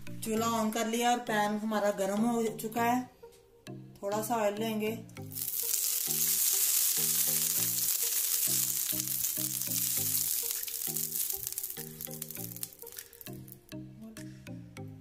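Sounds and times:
oil sizzling in frying pan: 5.3s - 13.6s.

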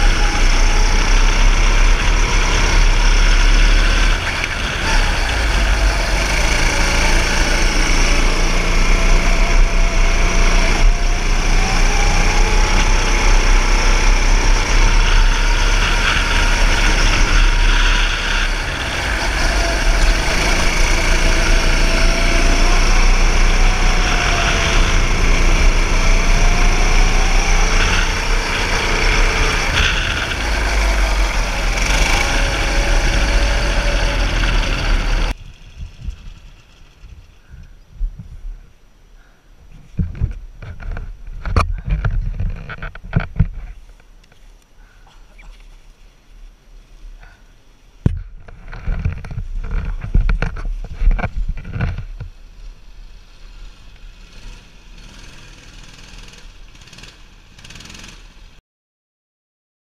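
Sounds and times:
go-kart engine running hard: 0.0s - 37.2s, 53.1s - 58.5s.

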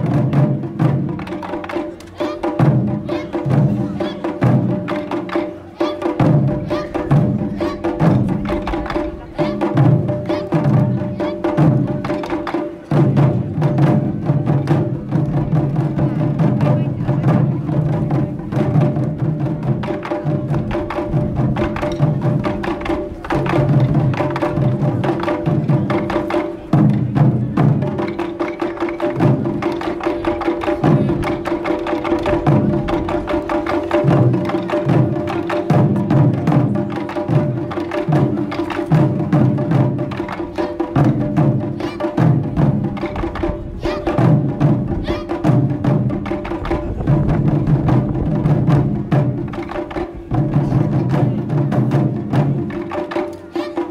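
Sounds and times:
fast loud drumming on barrel drums: 0.0s - 53.9s.

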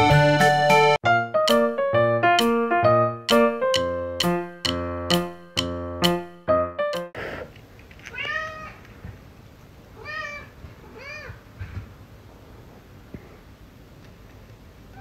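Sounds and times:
piano phrase: 0.0s - 7.2s
cat meowing: 8.1s - 8.8s, 10.0s - 11.4s.

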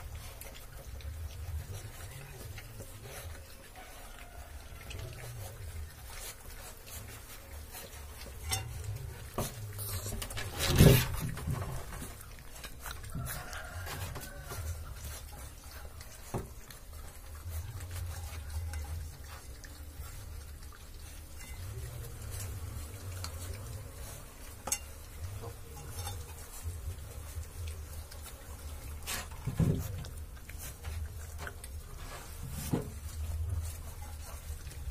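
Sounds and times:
puppies lapping and licking: 0.0s - 34.9s
clicks and scrapes against metal pan: 6.8s - 16.6s, 17.8s - 19.6s, 21.2s - 22.6s, 24.5s - 26.8s.

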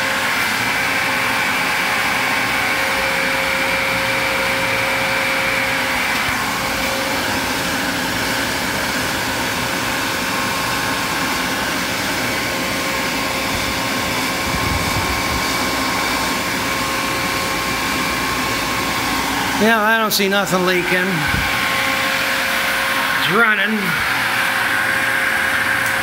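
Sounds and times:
electric motor hum and whine: 0.0s - 26.0s.

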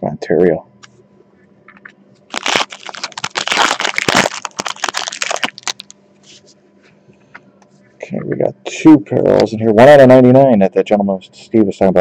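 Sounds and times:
plastic wrapper tearing and crinkling: 2.3s - 6.0s.

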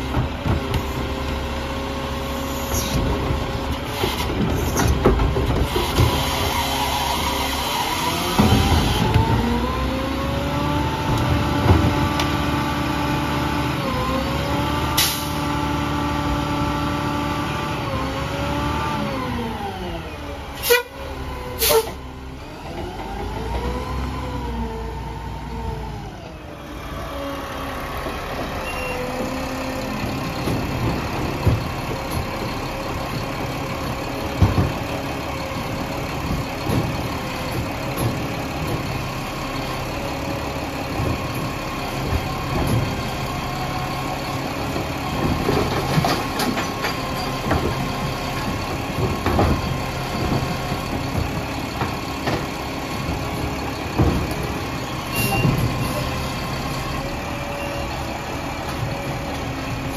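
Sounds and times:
diesel truck engine revving and idling: 0.0s - 59.9s
air brake bursts: 21.6s - 22.0s.

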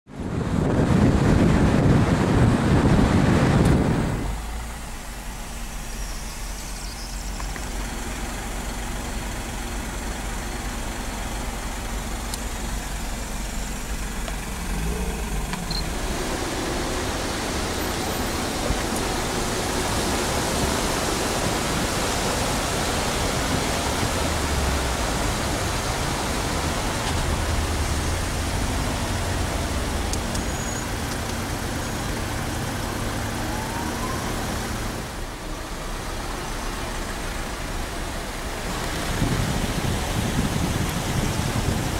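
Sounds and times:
wind on microphone: 0.1s - 4.8s, 38.6s - 41.9s
traffic jam engines: 0.1s - 41.9s.

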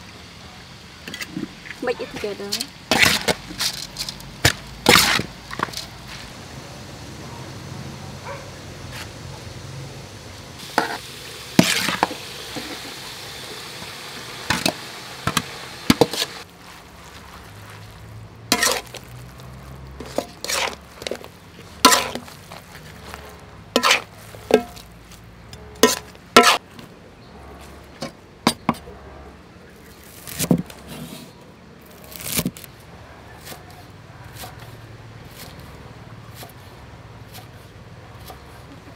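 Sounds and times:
sizzling hiss: 0.0s - 26.6s
spatula scraping metal wok: 10.6s - 17.9s, 18.5s - 26.6s.

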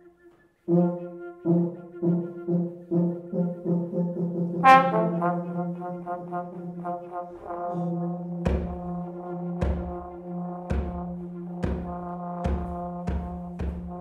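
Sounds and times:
brass ensemble playing: 0.0s - 14.0s
trombone and tuba low notes: 0.2s - 14.0s
drum hit: 8.5s - 9.0s, 9.6s - 10.1s, 10.7s - 14.0s.

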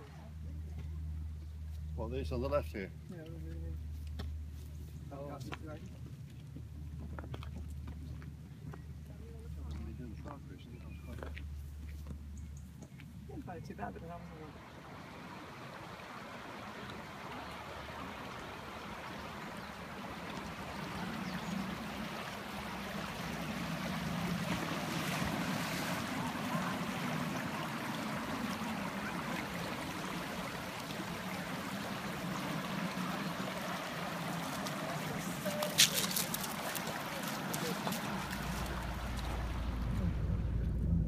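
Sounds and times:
river running over stones: 14.0s - 40.5s.

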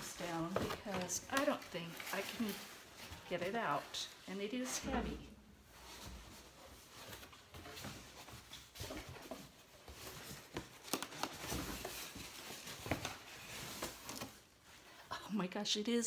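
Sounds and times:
cardboard rustling and scraping: 5.7s - 14.5s.

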